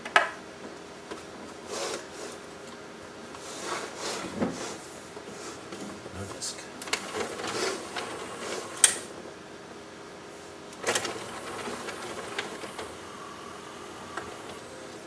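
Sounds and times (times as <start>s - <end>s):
motorised drawer whirring: 6.8s - 9.2s, 10.7s - 15.0s.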